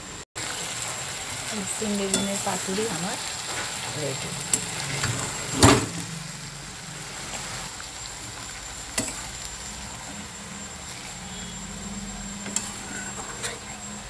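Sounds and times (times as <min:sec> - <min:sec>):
vegetables sizzling in a pan: 0:00.0 - 0:14.0
metal spatula stirring: 0:02.1 - 0:02.4, 0:10.9 - 0:14.0
spatula clinking on pan: 0:02.1 - 0:02.4.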